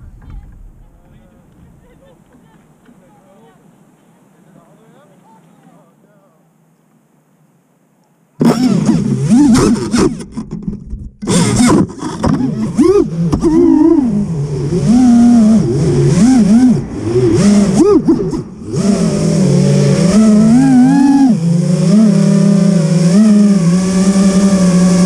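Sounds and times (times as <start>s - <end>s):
drone motors whining: 8.4s - 25.0s.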